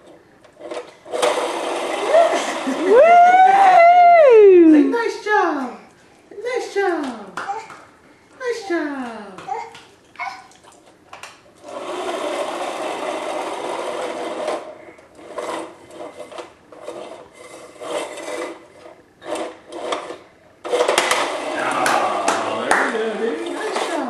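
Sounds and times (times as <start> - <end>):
toy truck rolling on wooden floor: 0.0 - 2.8, 11.6 - 22.1, 22.9 - 24.0.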